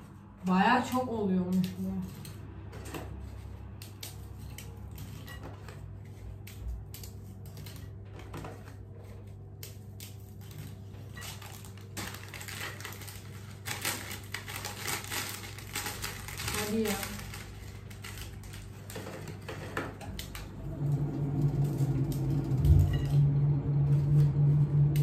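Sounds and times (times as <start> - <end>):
steady low hum: 19.9 - 25.0.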